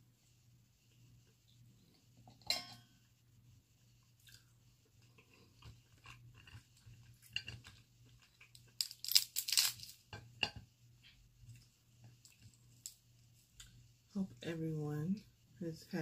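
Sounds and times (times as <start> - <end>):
chewing: 4.2 - 8.8
crab shell cracking: 5.9 - 10.0.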